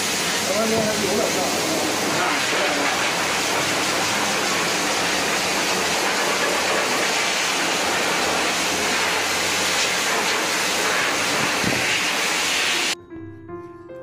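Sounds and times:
tap water running into metal tub: 0.0s - 13.0s.

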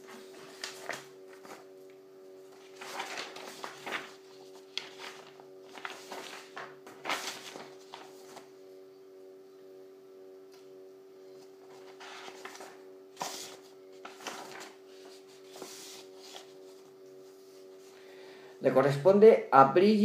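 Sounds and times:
paper sheets rustling: 0.0s - 1.7s, 2.4s - 8.5s, 11.4s - 18.0s
faint steady hum: 0.0s - 20.0s.

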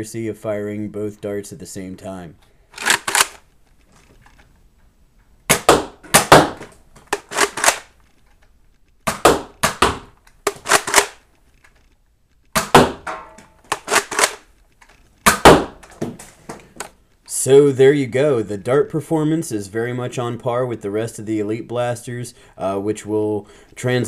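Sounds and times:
dart blaster clacks and pops: 5.5s - 8.0s, 8.9s - 16.2s.

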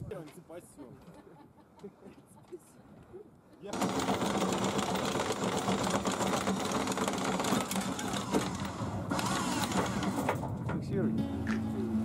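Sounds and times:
small motor rattling: 3.7s - 10.5s.

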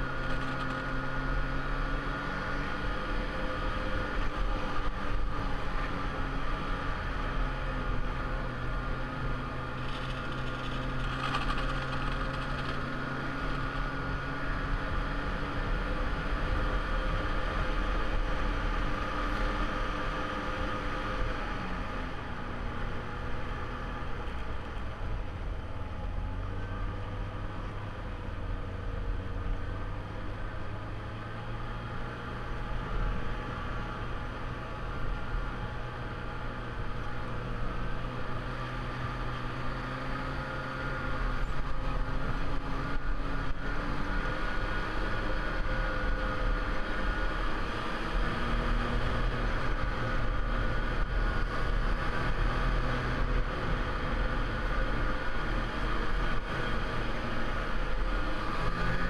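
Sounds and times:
snowmobile engine running: 7.6s - 15.6s.

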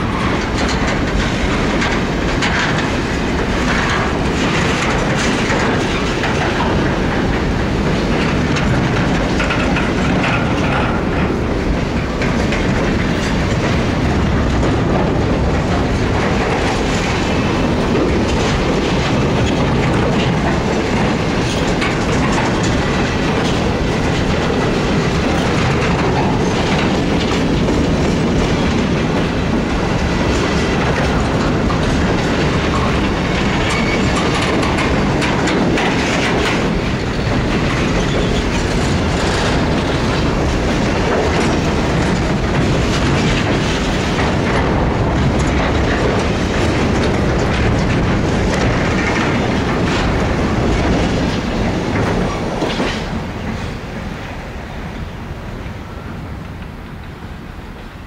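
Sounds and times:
steel wheels rumbling on rail: 0.0s - 58.0s
wheels clicking over rail joints: 0.0s - 58.0s.

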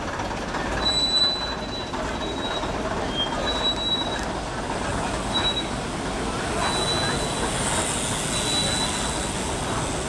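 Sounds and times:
bus diesel engine running: 0.0s - 10.0s
brakes squealing: 0.8s - 4.4s, 6.4s - 10.0s.

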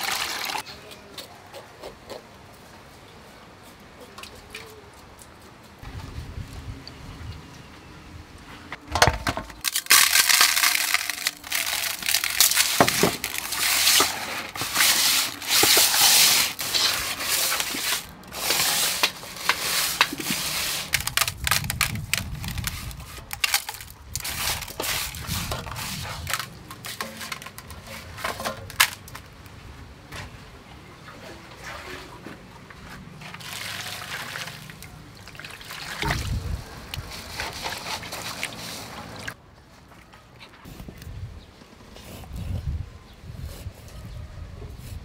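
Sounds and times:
hands scrubbing fish in metal bowl: 9.8s - 29.2s, 36.9s - 39.4s.

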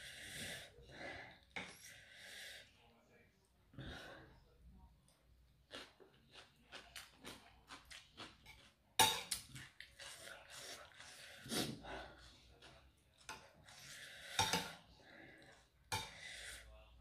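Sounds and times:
crunchy chewing: 5.7s - 8.8s.

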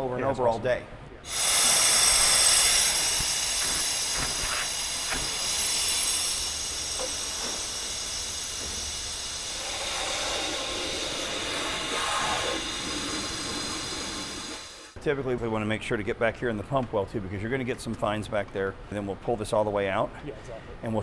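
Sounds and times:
air-powered vacuum hissing: 1.2s - 15.0s.

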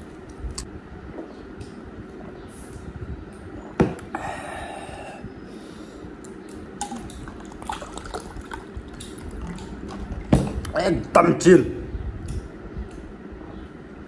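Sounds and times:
ice clinking: 6.8s - 10.2s
soda pouring over ice: 6.8s - 10.2s.

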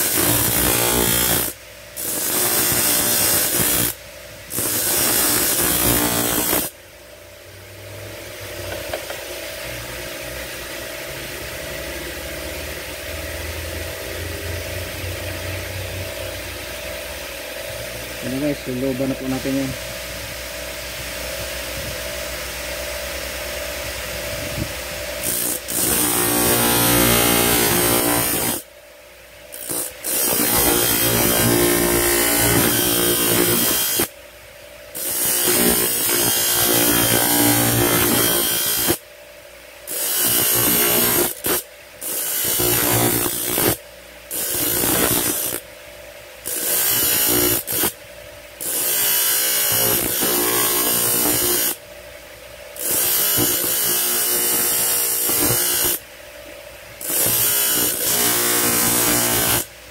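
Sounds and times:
grinding metal: 0.0s - 6.7s, 25.2s - 28.6s, 29.6s - 34.1s, 35.0s - 39.0s, 39.9s - 45.6s, 46.5s - 47.9s, 48.6s - 51.8s, 57.0s - 59.7s.

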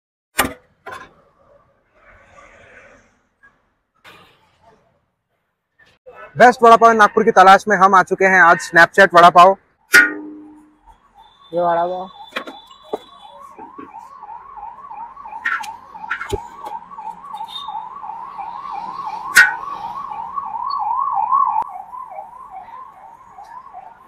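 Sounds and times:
siren yelping: 6.3s - 24.0s.

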